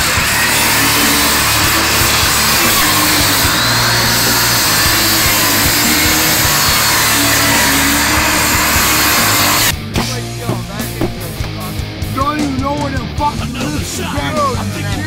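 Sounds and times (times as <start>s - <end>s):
circular saw cutting: 0.0s - 9.7s.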